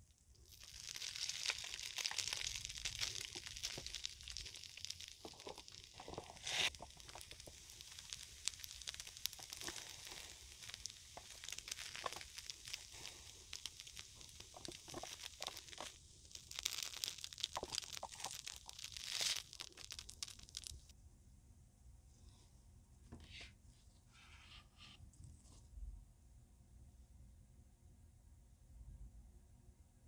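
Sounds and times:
crunching and chewing fried food: 0.4 - 20.9.

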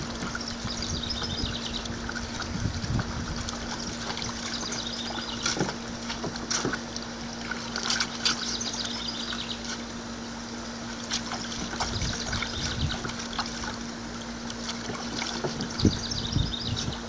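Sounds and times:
hose water running into tub: 0.0 - 17.0
low hum: 0.0 - 17.0
water splashing: 0.0 - 17.0.

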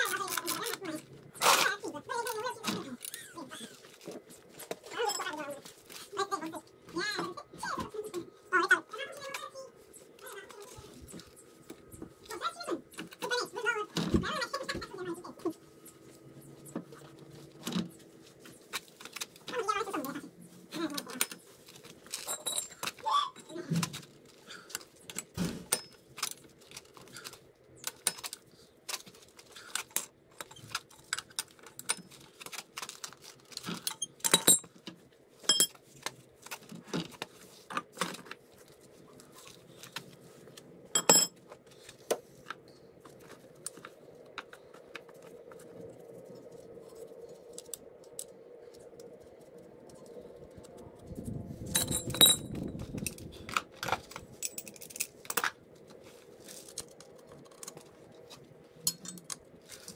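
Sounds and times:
metal tools clinking: 22.0 - 23.5, 33.7 - 34.8, 35.4 - 35.8, 40.9 - 41.4, 51.7 - 53.2, 54.3 - 55.4, 58.8 - 59.9.

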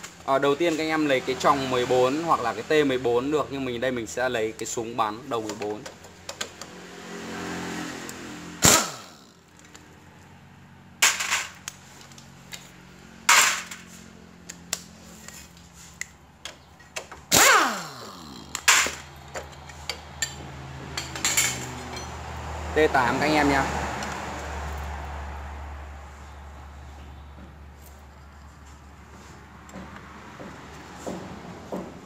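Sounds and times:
impact wrench bursts: 8.6 - 9.5, 17.2 - 20.4.

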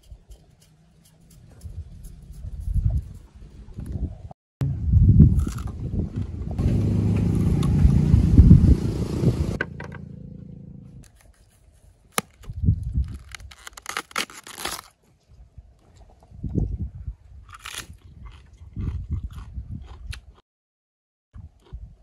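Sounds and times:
low engine rumble: 4.6 - 11.0
knife cutting cabbage: 11.0 - 14.9.

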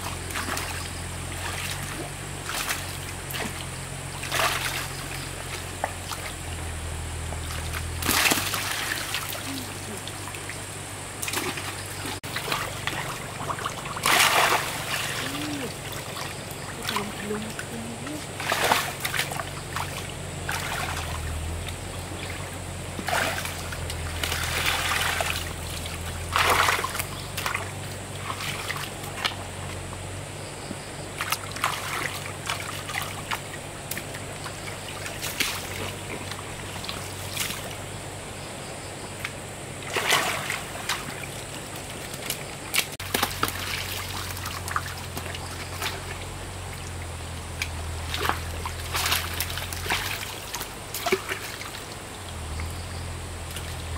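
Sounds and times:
low steady hum: 0.0 - 53.9
water trickling and splashing: 0.0 - 53.9.

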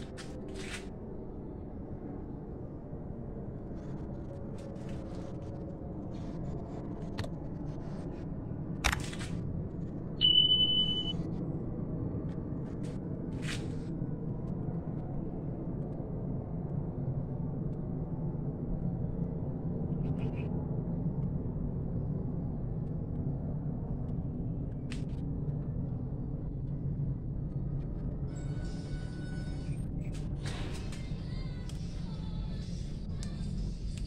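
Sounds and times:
low background rumble: 0.0 - 34.0
high beep: 10.2 - 11.1.

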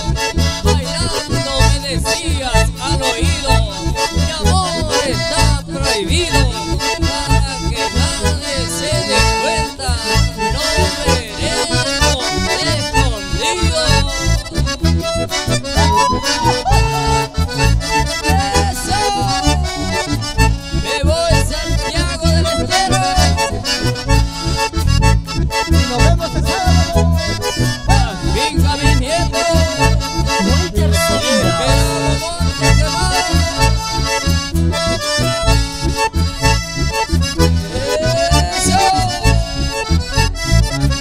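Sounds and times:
button accordion melody: 0.0 - 41.0
pulsing bass beat: 0.0 - 41.0
strummed guitar: 22.5 - 41.0.

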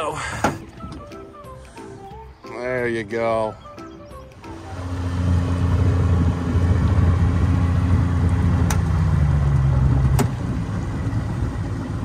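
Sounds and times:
outboard motor running: 4.0 - 12.0.

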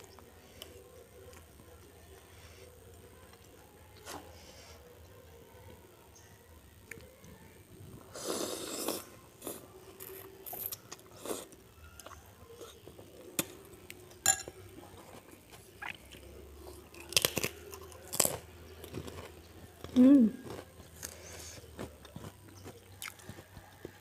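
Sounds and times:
slurping noodles and broth: 8.1 - 9.6
crunch of crisp cracker: 8.6 - 24.0
spoon clinking on ceramic bowl: 14.2 - 14.6.

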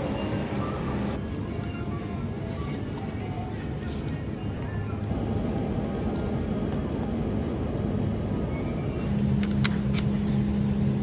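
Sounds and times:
supermarket ambience rumble: 0.0 - 11.0
steady low hum: 2.1 - 11.0.

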